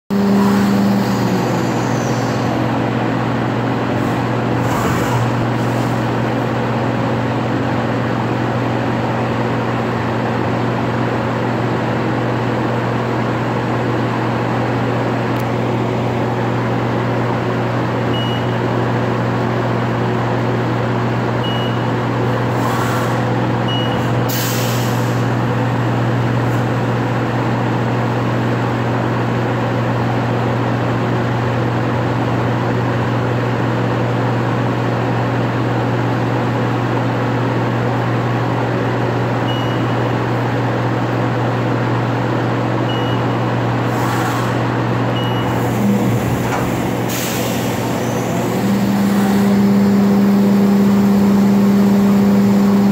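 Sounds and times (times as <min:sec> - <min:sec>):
milling machine humming: 0:00.1 - 0:07.5, 0:45.2 - 0:52.9
faint short beeps: 0:18.1 - 0:18.6, 0:21.4 - 0:21.9, 0:39.5 - 0:40.0, 0:42.9 - 0:43.5, 0:45.2 - 0:45.6
compressed air hisses: 0:47.0 - 0:48.3.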